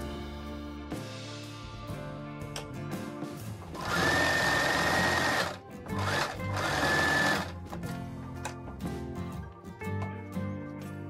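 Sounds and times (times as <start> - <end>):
sewing machine motor whine: 3.8 - 7.5.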